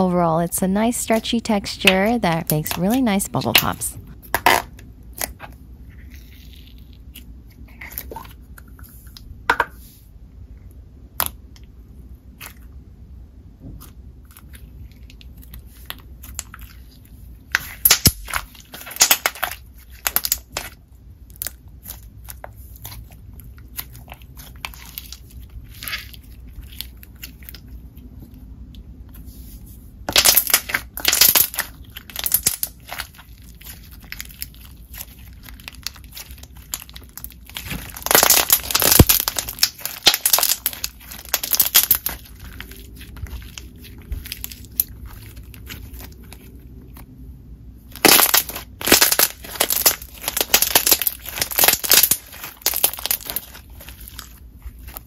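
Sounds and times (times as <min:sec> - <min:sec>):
slime squishing and crackling: 0:01.1 - 0:09.3, 0:11.0 - 0:55.0.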